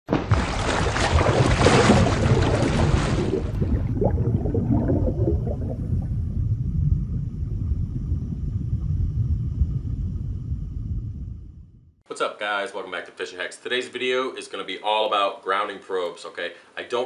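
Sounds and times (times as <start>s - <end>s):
water bubbling and gurgling: 0.2s - 11.6s
deep underwater rumble: 0.3s - 12.0s.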